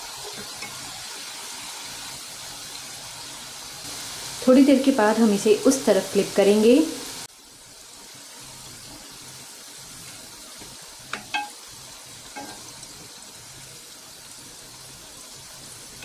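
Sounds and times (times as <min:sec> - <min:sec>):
deep-frying sizzle: 0:00.0 - 0:16.0
spoon clinking against pan: 0:11.1 - 0:11.6.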